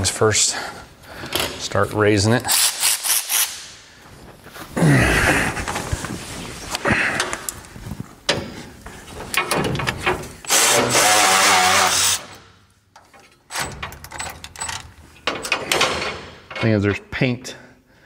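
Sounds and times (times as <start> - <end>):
metal clicks and rattles: 9.2 - 10.5, 12.9 - 17.0.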